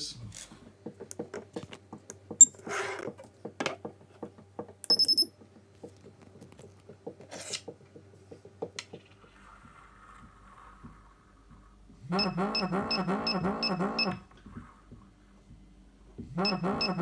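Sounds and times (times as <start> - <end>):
short high beep: 4.9 - 5.3.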